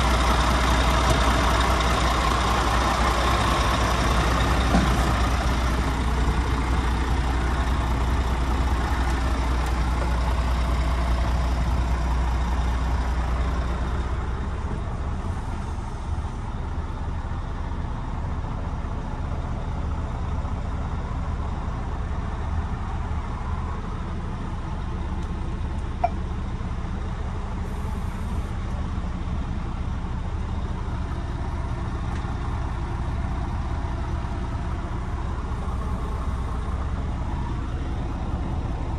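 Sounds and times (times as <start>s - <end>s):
diesel truck engine idling: 0.0s - 38.9s.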